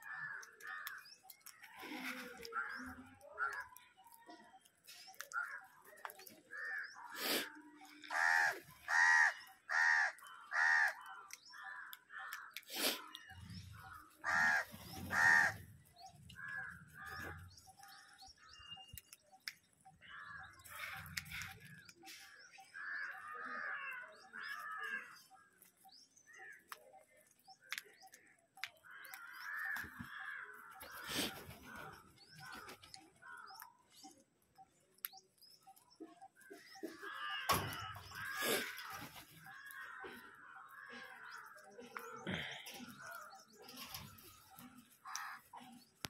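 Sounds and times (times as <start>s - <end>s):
crows cawing: 0.0s - 3.8s, 5.2s - 7.2s, 7.8s - 12.6s, 13.2s - 18.2s, 22.7s - 25.5s, 28.8s - 33.6s, 36.7s - 41.6s, 42.2s - 45.7s.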